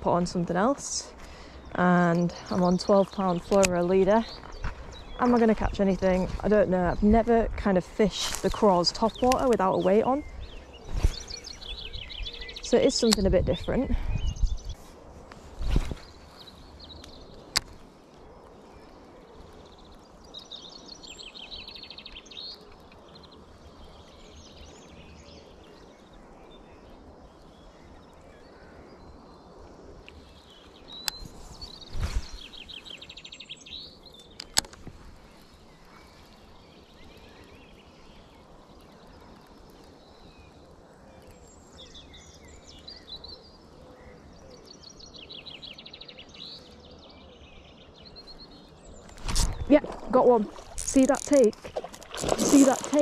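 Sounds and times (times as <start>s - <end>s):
outdoor background noise: 0.0s - 53.0s
songbirds trilling: 0.0s - 53.0s
sharp clicks: 34.2s - 34.8s.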